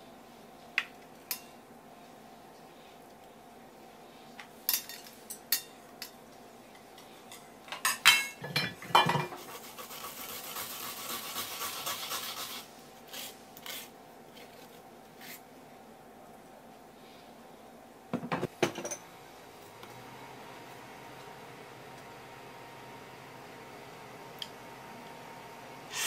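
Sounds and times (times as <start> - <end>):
dishes clattering on wooden counter: 7.8 - 9.4, 18.1 - 19.0
root rasping on a grater: 9.5 - 14.6.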